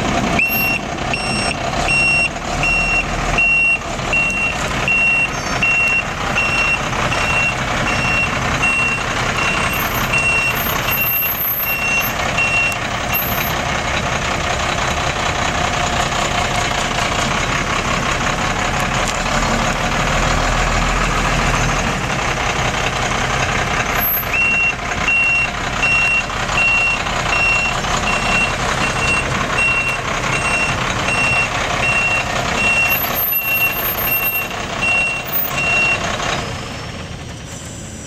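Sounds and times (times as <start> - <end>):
truck engine running: 0.0 - 38.0
backup alarm beeping: 0.4 - 13.4, 24.3 - 36.0.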